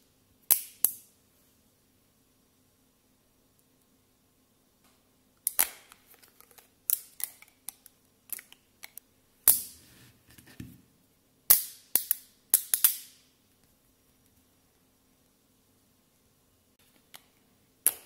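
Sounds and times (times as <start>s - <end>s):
magnet balls snapping together: 0.5s - 1.0s, 5.4s - 9.7s, 11.5s - 13.2s, 17.0s - 18.0s.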